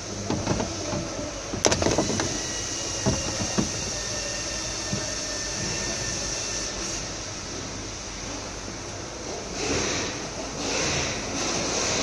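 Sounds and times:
steady workshop hiss: 0.0 - 12.0
sharp clicks and knocks: 0.2 - 3.9.

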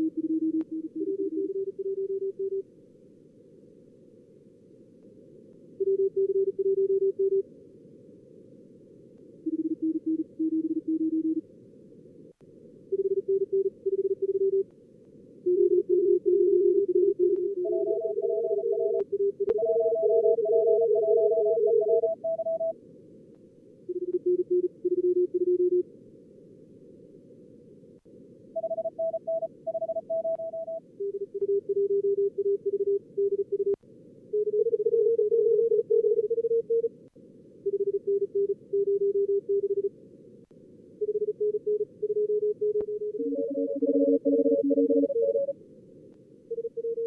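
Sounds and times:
morse code tones: 15.5 - 22.7, 28.6 - 33.8, 41.0 - 45.5.

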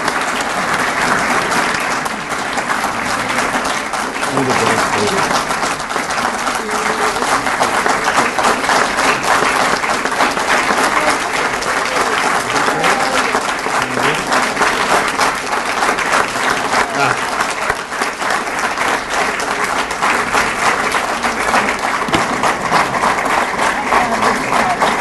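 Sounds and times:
crowd applauding: 0.0 - 25.0
faint voices: 10.3 - 14.9, 16.5 - 18.0.

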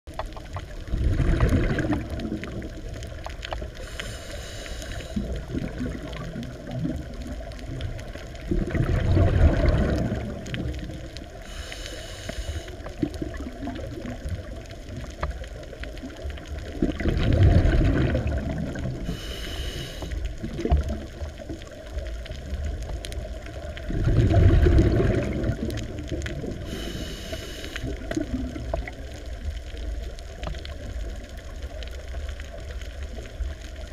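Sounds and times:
exhaled air bubbling: 0.1 - 33.9
regulator inhalation hiss: 3.8 - 5.4, 11.4 - 12.9, 19.0 - 20.2, 26.6 - 27.9.

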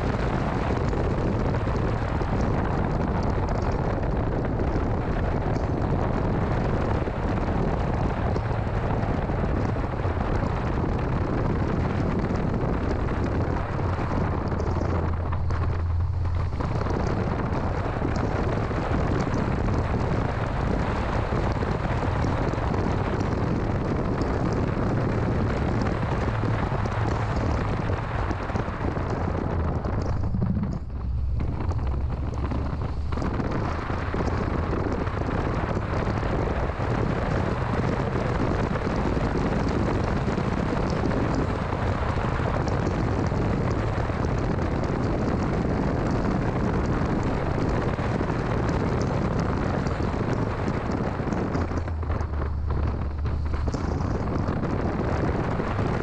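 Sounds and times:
car driving noise: 0.0 - 56.0
low engine hum: 0.0 - 56.0.

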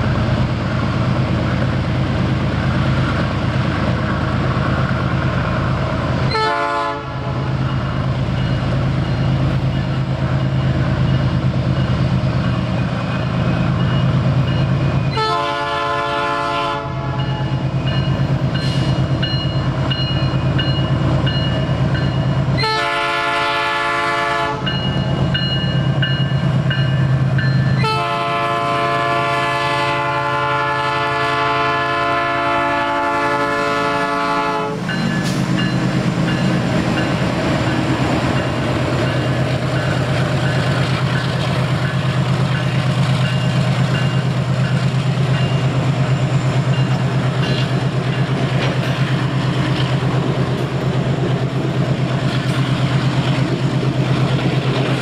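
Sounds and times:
diesel locomotive engine running: 0.0 - 55.0
locomotive horn blasts: 6.3 - 7.5, 15.1 - 17.5, 22.6 - 24.8, 27.8 - 35.0.

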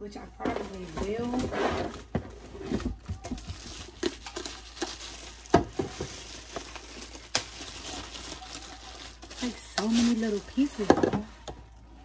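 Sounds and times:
plastic packaging crinkling: 0.2 - 11.5.

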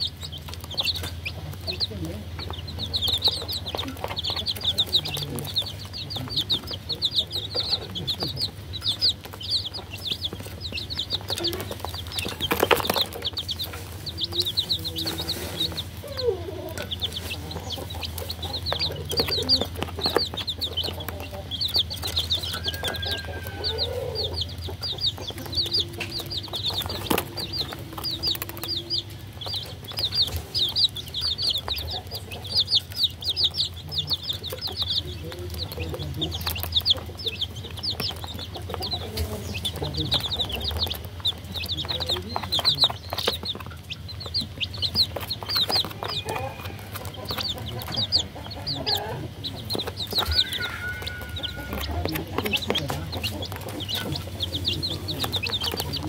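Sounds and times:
baby chicks peeping: 0.0 - 56.0
low clucking calls: 0.0 - 56.0.

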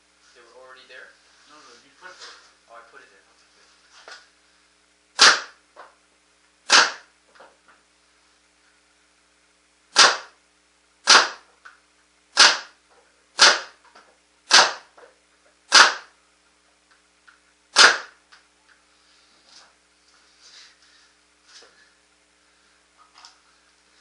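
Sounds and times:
paintball marker firing shots: 5.2 - 5.6, 6.7 - 7.1, 9.9 - 10.4, 11.0 - 11.5, 12.4 - 12.8, 13.4 - 13.8, 14.5 - 15.0, 15.7 - 16.1, 17.7 - 18.2.

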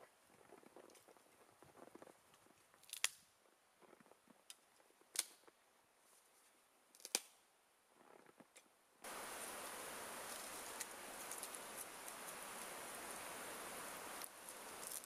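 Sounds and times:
faint crunching in snow: 9.0 - 15.0.

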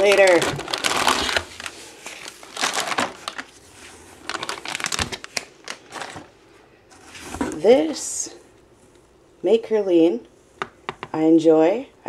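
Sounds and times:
foil packets crinkling: 0.0 - 6.3.

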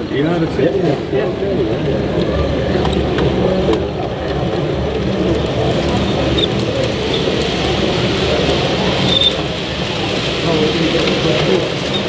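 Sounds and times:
voices murmuring: 0.0 - 12.0.

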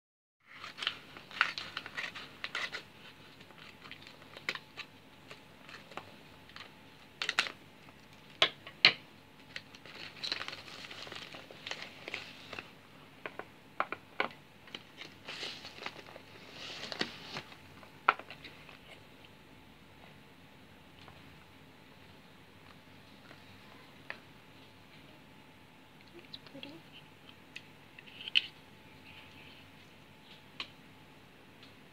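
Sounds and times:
envelope crinkling and rustling: 0.4 - 8.4, 9.4 - 12.8, 14.7 - 18.8
scissors snipping paper: 0.6 - 4.9.

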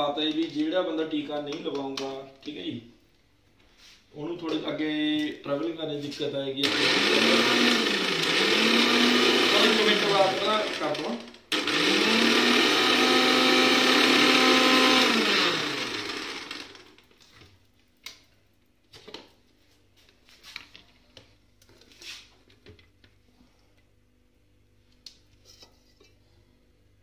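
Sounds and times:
kitchen blender running: 6.6 - 17.1.

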